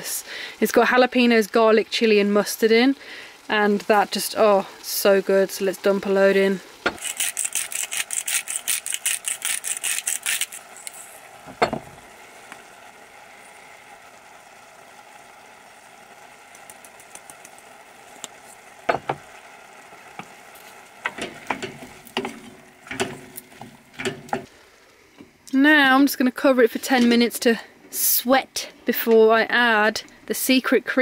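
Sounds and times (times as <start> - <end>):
onions sizzling in saucepan: 0.0 - 30.8
seasoning grinder ratcheting: 6.9 - 11.1.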